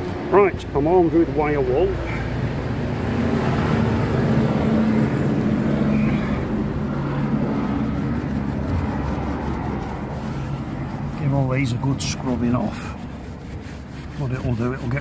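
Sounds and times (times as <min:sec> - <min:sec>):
low mechanical drone: 0:00.0 - 0:15.0
wire wool rubbing on glass: 0:05.6 - 0:15.0.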